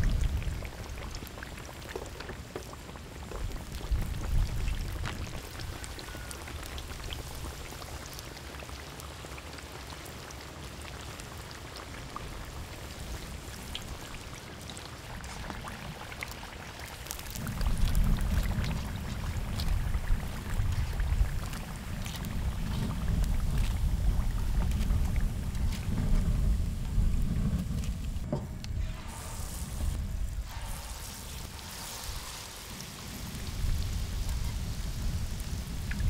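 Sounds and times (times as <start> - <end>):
deep-frying crackle in hot oil: 0.0 - 36.0
low rumble: 17.4 - 31.2.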